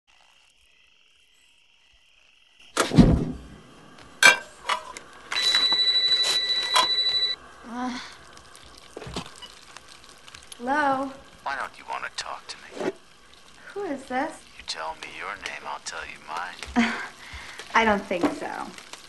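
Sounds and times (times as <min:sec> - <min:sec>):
telephone ringing: 0:05.3 - 0:07.4.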